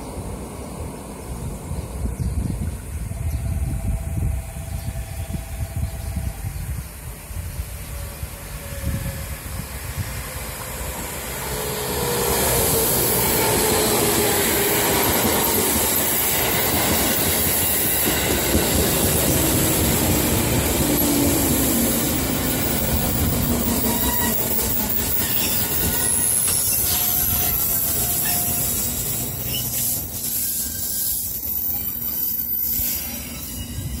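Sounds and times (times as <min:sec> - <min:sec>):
train wheels rumbling on rails: 0:00.0 - 0:34.0
high wheel squeals: 0:11.1 - 0:34.0.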